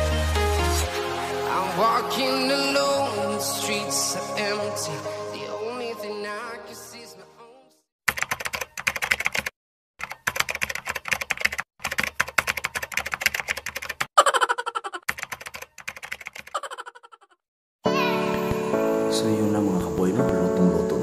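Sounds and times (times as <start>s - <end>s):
keyboard typing clicks: 8.1s - 14.1s, 15.1s - 16.6s.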